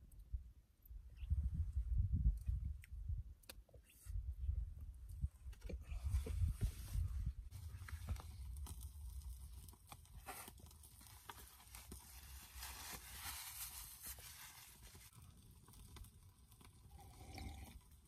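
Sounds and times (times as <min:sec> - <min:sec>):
chewing food crackles and clicks: 0:07.9 - 0:12.1, 0:15.1 - 0:18.0.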